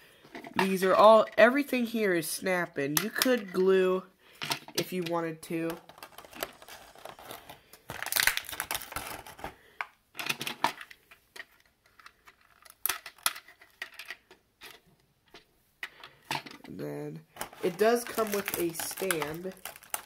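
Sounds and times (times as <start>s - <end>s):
plastic parts clicking: 4.4s - 16.8s, 17.4s - 20.0s
plastic tray crinkling: 4.8s - 15.4s, 16.3s - 20.0s.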